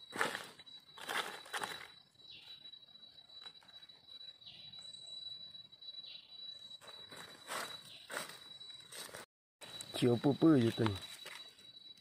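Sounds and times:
footsteps crunching through dry leaves: 0.0 - 1.9, 6.8 - 9.3
high-pitched insect drone: 0.0 - 12.0.

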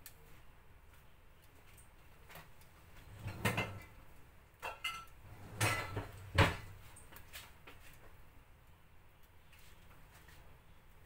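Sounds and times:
kitchenware knocking and clinking: 3.2 - 3.9, 4.6 - 6.8.

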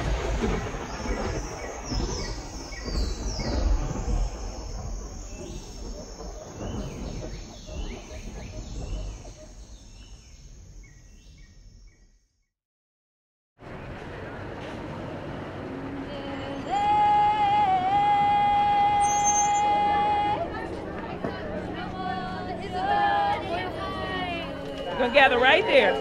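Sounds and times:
deep rumble: 0.0 - 12.0.

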